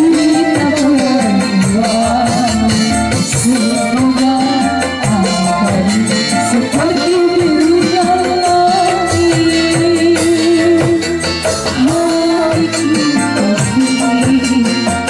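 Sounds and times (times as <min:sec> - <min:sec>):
electronic keyboard: 0:00.0 - 0:15.0
hand drums: 0:00.0 - 0:15.0
woman singing into a microphone: 0:00.0 - 0:15.0.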